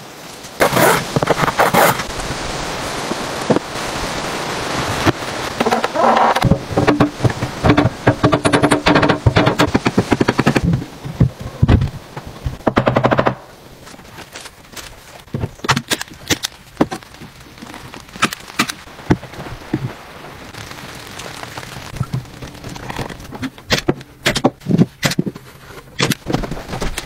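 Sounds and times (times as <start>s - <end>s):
fast clattering impacts: 5.6s - 13.4s.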